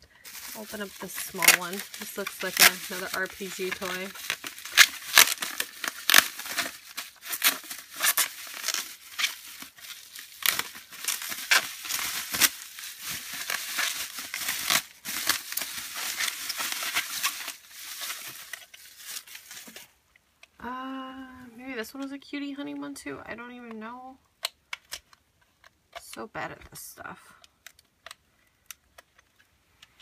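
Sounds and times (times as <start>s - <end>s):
bubble wrap crackling: 0.0s - 20.0s.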